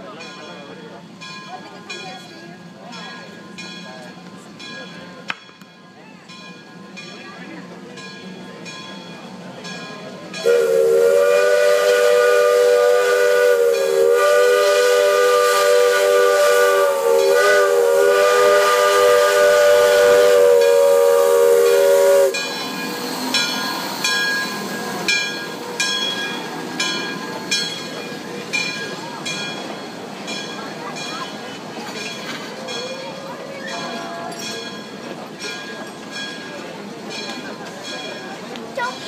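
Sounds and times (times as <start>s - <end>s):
steam locomotive chuffing: 0.0s - 39.0s
hissing steam: 9.3s - 38.9s
steam whistle chord: 10.4s - 22.5s.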